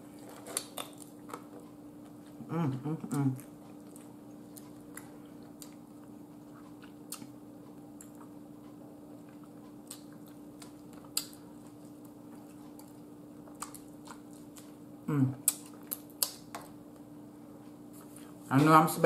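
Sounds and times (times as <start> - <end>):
person chewing: 0.0 - 17.0
lip smacks and clicks: 15.4 - 16.8.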